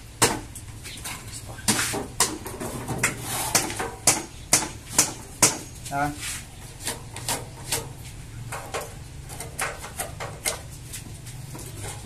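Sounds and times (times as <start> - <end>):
tools scraping concrete: 1.0 - 4.1, 6.0 - 12.0.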